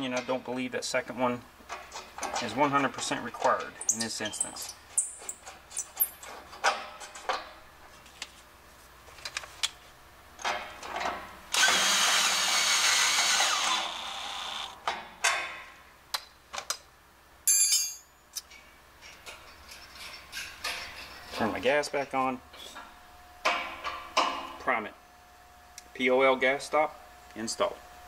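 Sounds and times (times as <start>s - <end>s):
clicks and knocks of handling: 9.1s - 9.8s
cordless drill driving a bolt: 11.5s - 14.8s.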